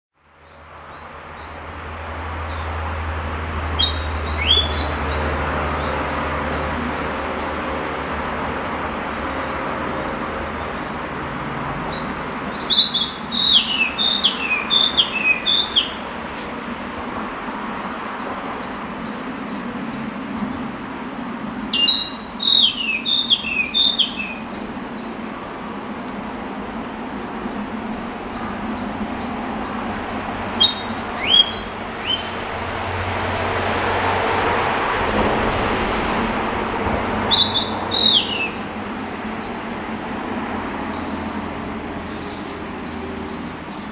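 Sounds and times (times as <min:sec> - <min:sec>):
bird singing whistled notes: 0:03.8 - 0:07.6, 0:11.9 - 0:16.0, 0:21.7 - 0:25.2, 0:27.8 - 0:32.2, 0:37.3 - 0:39.2.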